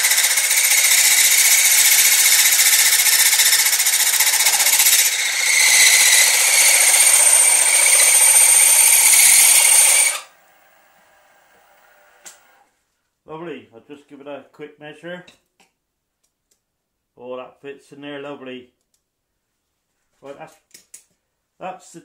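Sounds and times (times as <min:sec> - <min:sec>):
milling machine cutting metal: 0:00.0 - 0:10.2.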